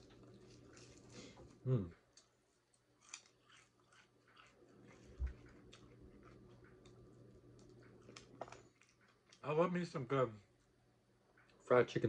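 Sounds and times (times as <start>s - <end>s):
chewing crunchy fried chicken: 0.0s - 9.6s
soft steady hum: 0.0s - 12.0s.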